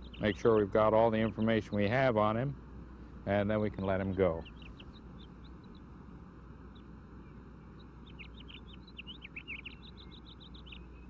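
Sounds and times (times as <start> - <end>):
faint outdoor hiss: 0.0 - 11.0
small birds chirping: 0.0 - 11.0.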